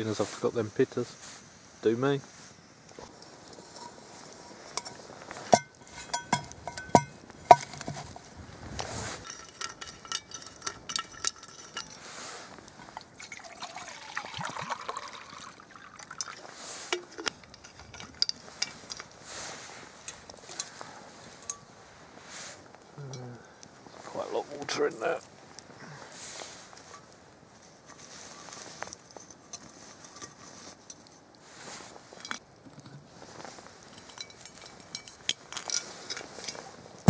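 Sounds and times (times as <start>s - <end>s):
steel mug clinking: 2.9s - 8.3s, 9.0s - 21.7s, 33.8s - 36.6s
liquid pouring into mug: 13.0s - 16.5s.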